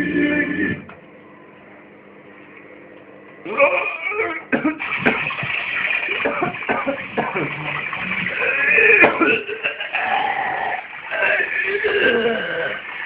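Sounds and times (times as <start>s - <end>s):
music: 0.0s - 6.3s
faint hum: 0.0s - 13.0s.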